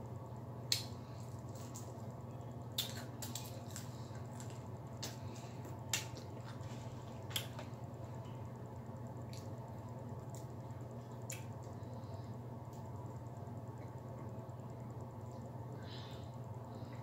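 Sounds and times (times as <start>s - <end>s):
steady low hum: 0.0s - 17.0s
crunching fried chicken: 0.7s - 8.4s.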